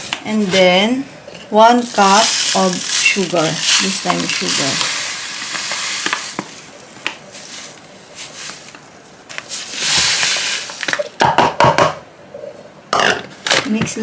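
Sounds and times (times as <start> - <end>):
sugar pouring with grainy hiss: 1.8 - 7.8, 9.6 - 10.8.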